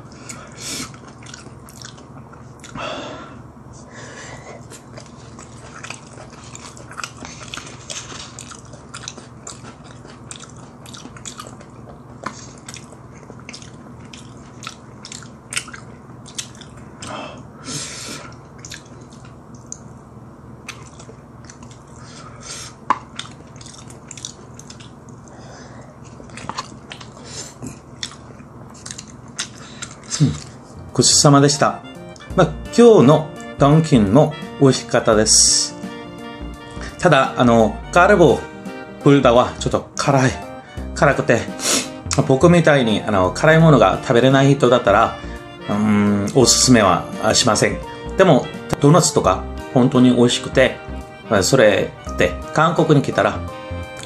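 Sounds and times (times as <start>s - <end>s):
steady low hum: 0.0s - 54.0s
chewing and mouth sounds: 0.2s - 2.8s, 4.5s - 17.2s, 18.2s - 30.6s.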